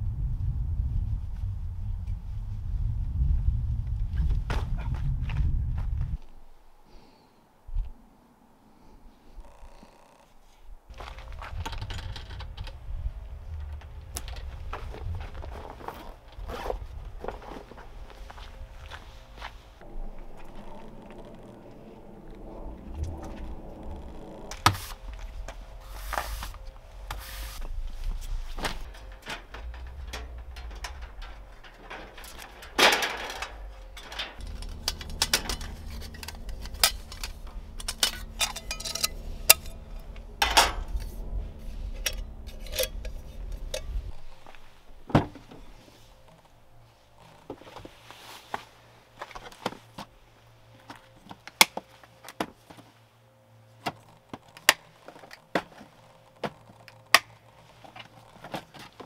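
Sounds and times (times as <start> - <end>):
steady low rumble: 0.0 - 6.8, 10.7 - 48.0
camp gear clinking and rattling: 10.9 - 12.9, 23.3 - 50.1, 53.8 - 59.0.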